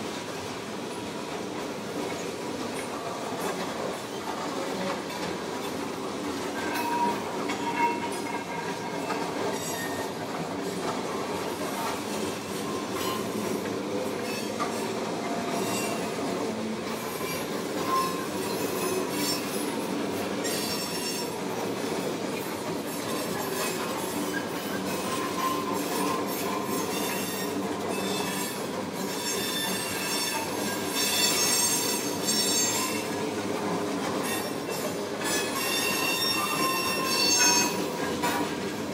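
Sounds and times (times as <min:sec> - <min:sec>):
freight train rolling past: 0:00.0 - 0:38.9
high-pitched wheel squeal: 0:35.2 - 0:37.8.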